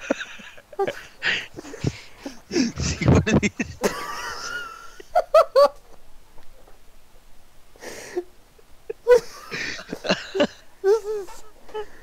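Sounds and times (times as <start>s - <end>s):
person laughing: 0.0s - 5.8s, 8.9s - 12.0s.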